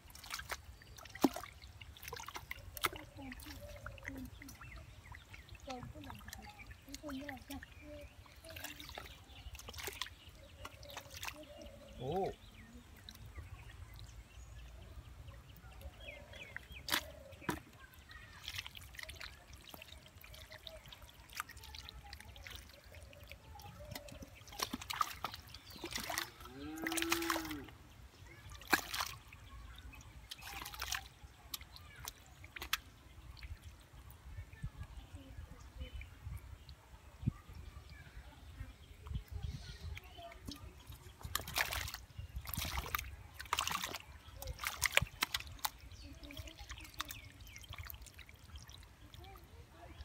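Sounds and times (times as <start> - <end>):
muddy water sloshing and splashing: 0.0 - 50.0
water trickling: 0.0 - 50.0.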